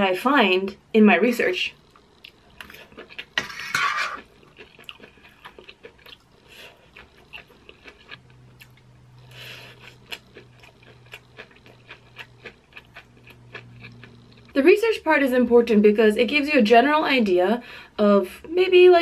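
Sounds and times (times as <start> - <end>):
close-up chewing with mouth clicks: 1.8 - 3.4, 4.2 - 14.6
fork scraping metal baking sheet: 3.4 - 4.3.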